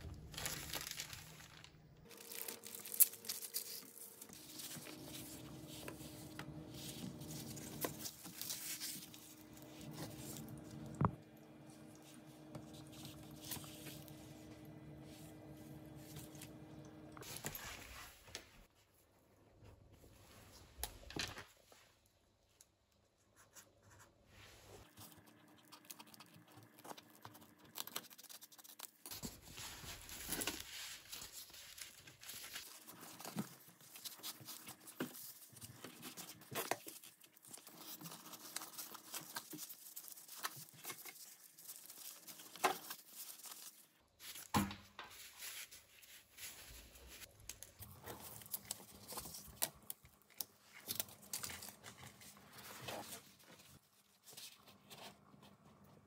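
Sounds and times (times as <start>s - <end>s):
fabric rustling and crinkling: 0.1s - 11.0s.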